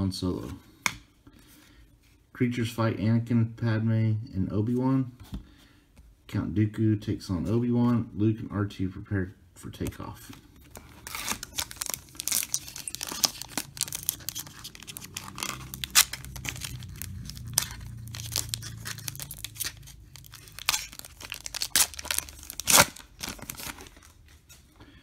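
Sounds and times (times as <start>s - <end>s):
wrapper crinkling and tearing: 10.7s - 24.2s.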